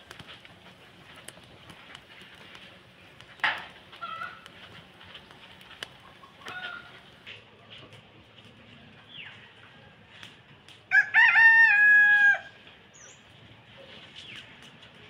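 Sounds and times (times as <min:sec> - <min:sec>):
rooster crowing: 0:10.9 - 0:12.6.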